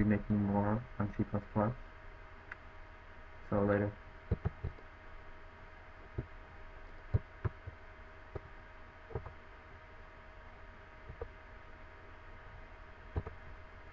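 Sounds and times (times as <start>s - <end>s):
faint steady hum: 0.0s - 13.9s
keyboard taps: 4.3s - 4.8s.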